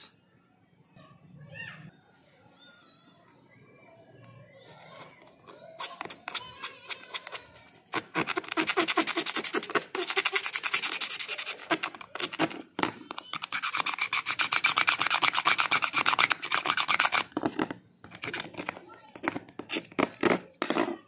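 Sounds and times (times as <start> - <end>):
knife scraping phone screen: 4.7 - 20.5.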